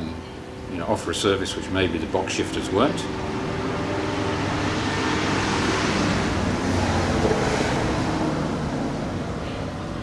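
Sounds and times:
vehicle driving past: 2.4 - 10.0.

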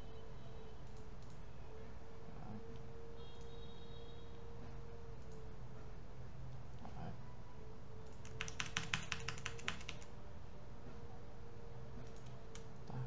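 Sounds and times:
faint steady hum: 0.0 - 13.0
keyboard typing: 0.8 - 1.4, 5.2 - 5.4, 8.0 - 10.1, 12.0 - 13.0.

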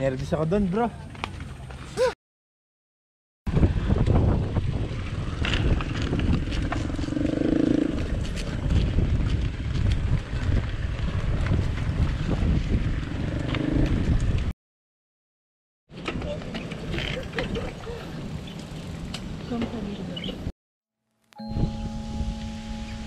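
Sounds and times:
wind buffeting microphone: 3.5 - 14.5
brief humming tone: 21.3 - 23.0.

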